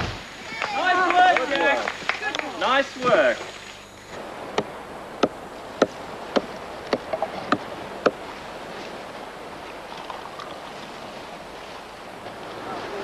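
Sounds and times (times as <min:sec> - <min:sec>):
surf hissing: 0:00.0 - 0:13.0
tool striking a log: 0:04.6 - 0:08.2.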